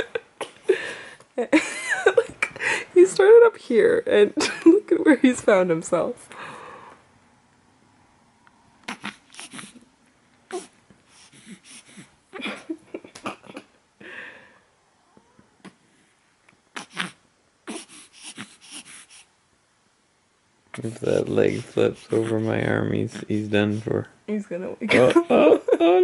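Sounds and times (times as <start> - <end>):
baby grunting and breathing: 8.8 - 9.9, 10.5 - 12.2, 16.7 - 19.3.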